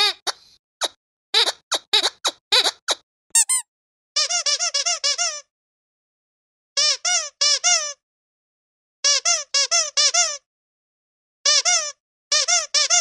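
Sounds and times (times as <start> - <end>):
squeaky dog toy squeaking: 0.0 - 5.5, 6.8 - 8.0, 9.0 - 10.4, 11.5 - 13.0.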